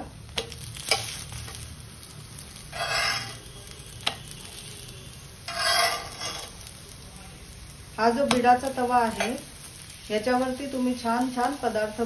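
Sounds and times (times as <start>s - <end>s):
faint steady sizzle: 0.0s - 12.0s
metal spatula scraping a griddle: 0.7s - 1.6s, 2.5s - 6.7s.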